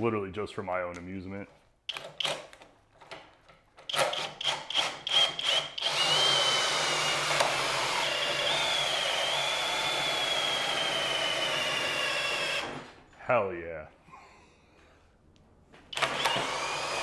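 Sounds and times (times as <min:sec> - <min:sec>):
cordless drill boring into wood: 0:03.9 - 0:13.0, 0:15.9 - 0:17.0.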